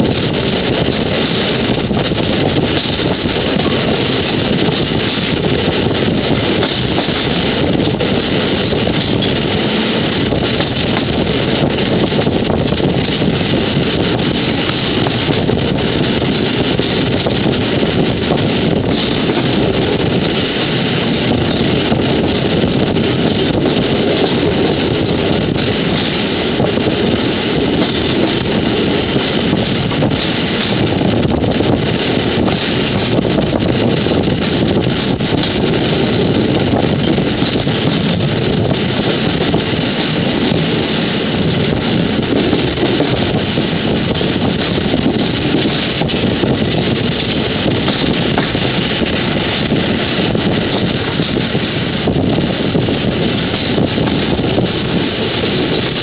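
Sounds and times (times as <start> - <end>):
moving train running: 0.0 - 56.0
wind buffeting microphone: 0.0 - 56.0.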